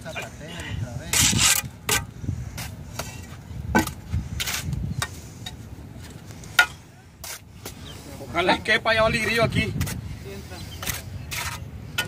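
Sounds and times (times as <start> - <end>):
trowel scraping: 1.1 - 2.1, 10.8 - 12.0.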